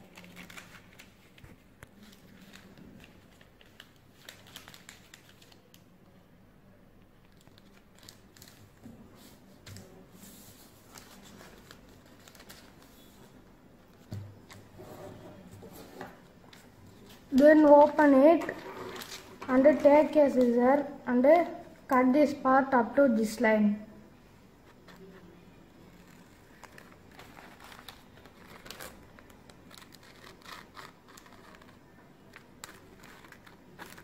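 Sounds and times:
paper rustling and crinkling: 0.0 - 5.8, 7.3 - 20.6, 25.9 - 34.0.

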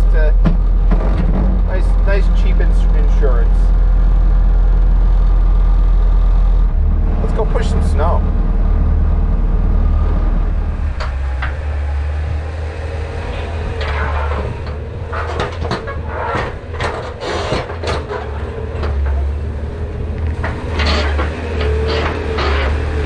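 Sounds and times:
clattering tracks: 0.0 - 23.0
loader engine drone: 0.0 - 23.0
plow blade knocks and rattles: 13.7 - 19.5.

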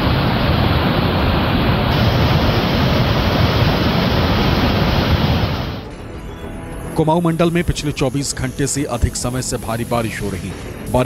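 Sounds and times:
floodwater rushing over weir: 0.0 - 5.8.

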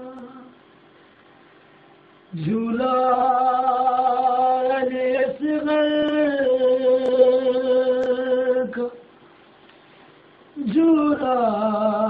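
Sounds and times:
man singing a lament: 2.3 - 9.0, 10.6 - 12.0.

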